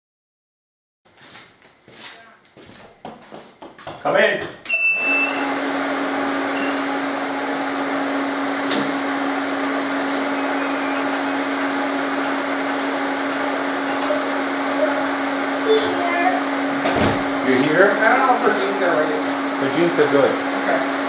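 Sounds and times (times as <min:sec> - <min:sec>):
fan noise: 0:05.0 - 0:21.0.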